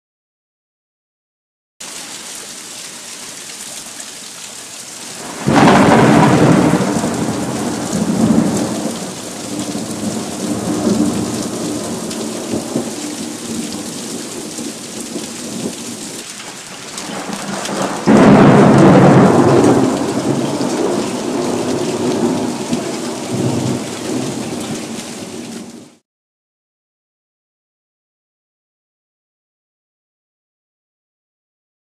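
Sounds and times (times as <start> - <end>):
rain and hail downpour: 1.8 - 26.0
thunderclaps rumbling: 5.2 - 16.0, 16.9 - 25.9.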